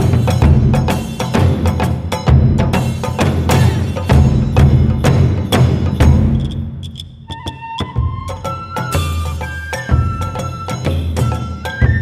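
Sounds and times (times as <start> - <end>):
sharp percussive hits: 0.0 - 7.6.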